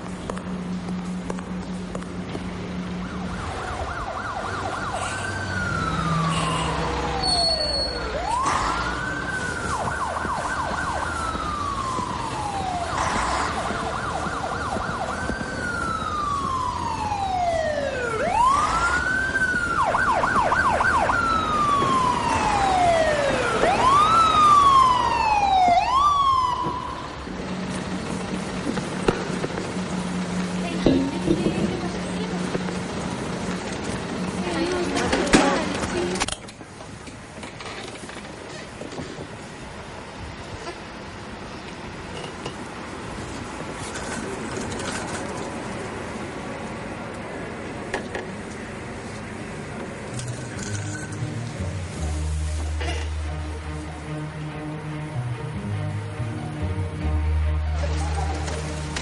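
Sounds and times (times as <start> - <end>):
electronic siren wailing: 3.0 - 27.3.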